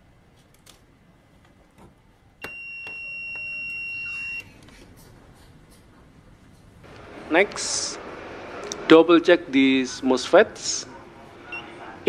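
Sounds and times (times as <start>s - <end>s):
multimeter high beep: 2.4s - 4.5s, 11.5s - 11.7s.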